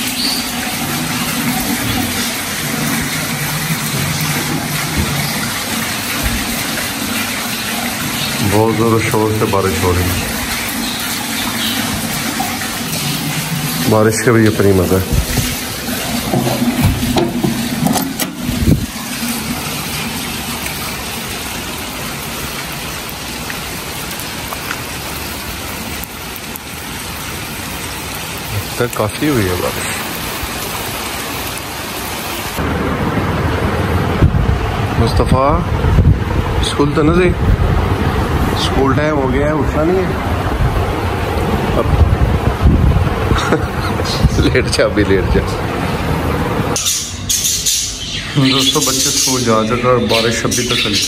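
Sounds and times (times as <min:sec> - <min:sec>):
heavy rain falling: 0:00.0 - 0:51.0.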